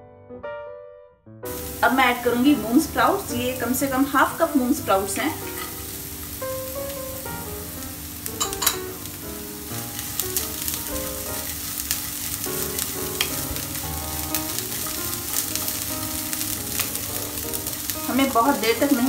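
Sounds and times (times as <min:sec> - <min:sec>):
vegetables sizzling in hot oil: 0:01.5 - 0:19.0
wooden spatula scraping a pan: 0:05.0 - 0:06.4, 0:09.8 - 0:19.0.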